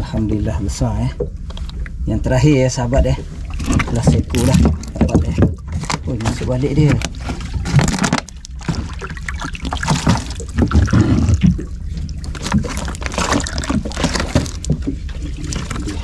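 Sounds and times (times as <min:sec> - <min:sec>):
wind and water against hull: 0:00.0 - 0:16.0
knocks and rattles: 0:03.0 - 0:09.1.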